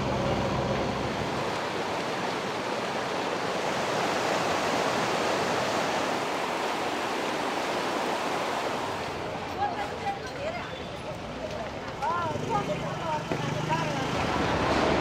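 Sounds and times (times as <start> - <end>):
floodwater rushing: 0.0 - 10.2, 13.6 - 15.0.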